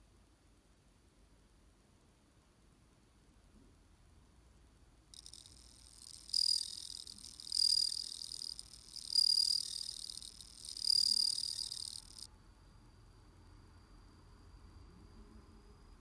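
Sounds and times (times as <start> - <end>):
crickets bell-like trill: 5.2 - 12.3.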